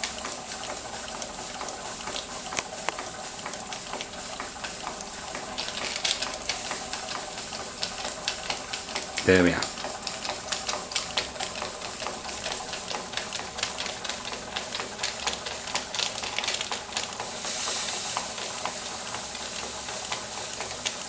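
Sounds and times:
steam engine rhythmic clicking: 0.0s - 21.0s
steam hissing: 6.2s - 7.1s, 17.2s - 21.0s.

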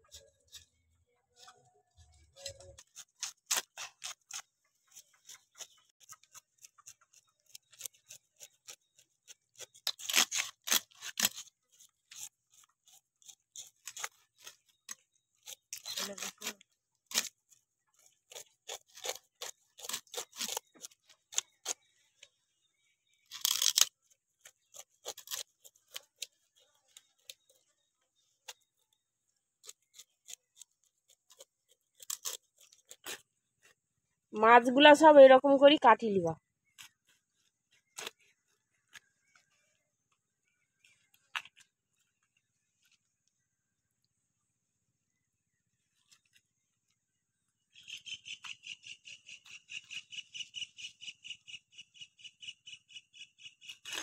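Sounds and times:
knife scraping fish scales: 2.4s - 21.9s, 23.2s - 27.6s, 29.6s - 33.3s.

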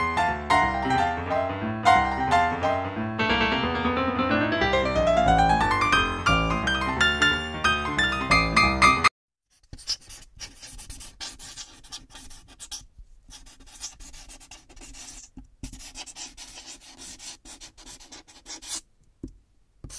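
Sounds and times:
scratching and rubbing: 9.5s - 18.8s.

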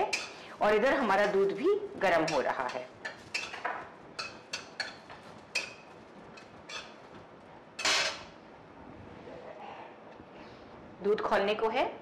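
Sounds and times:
metal spatula scraping a pan: 0.0s - 0.5s, 2.1s - 3.6s, 4.2s - 7.0s, 7.8s - 8.3s.

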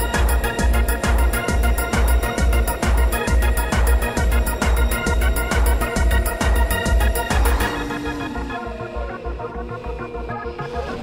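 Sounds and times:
kick drum beat: 0.0s - 8.1s
ticking hi-hats: 0.0s - 9.2s
organ-like keyboard chords: 0.0s - 11.0s.

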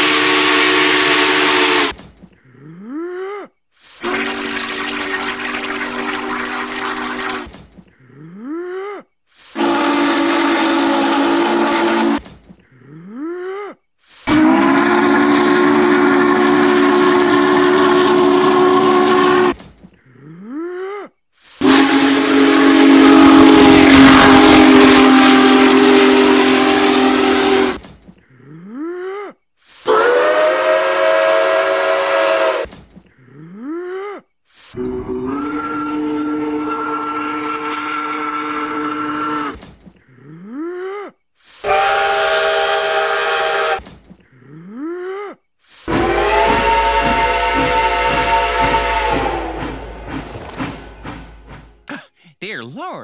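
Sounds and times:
steam locomotive whistles: 0.0s - 2.0s, 4.0s - 7.6s, 9.4s - 12.3s, 14.2s - 19.6s, 21.5s - 27.8s, 29.8s - 32.7s, 34.7s - 39.6s, 41.6s - 43.9s, 45.8s - 51.9s.

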